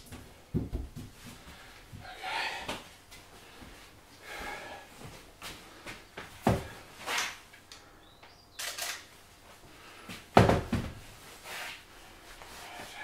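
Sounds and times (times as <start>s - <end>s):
rustling and shuffling: 0.0s - 7.5s, 9.0s - 13.0s
objects knocking and thumping: 6.3s - 7.4s, 10.3s - 11.1s.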